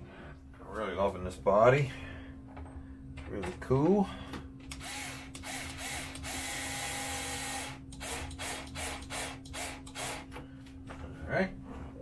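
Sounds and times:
screwdriver whirring: 0:04.7 - 0:10.4.

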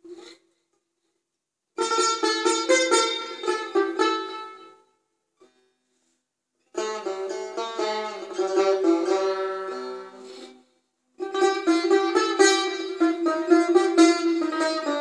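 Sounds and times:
plucked lute melody: 0:01.8 - 0:04.8, 0:06.7 - 0:15.0.

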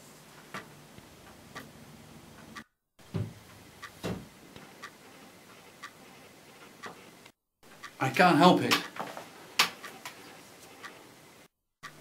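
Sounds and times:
clock ticking: 0:02.4 - 0:11.1.

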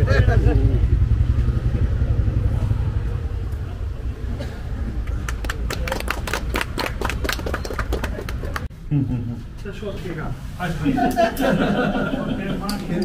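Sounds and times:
road traffic rumble: 0:00.0 - 0:13.0
people clapping: 0:05.0 - 0:08.7.

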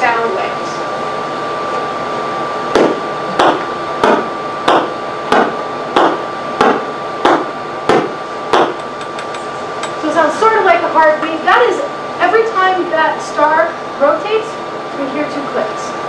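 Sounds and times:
rhythmic pulsar thumps: 0:02.7 - 0:09.2.

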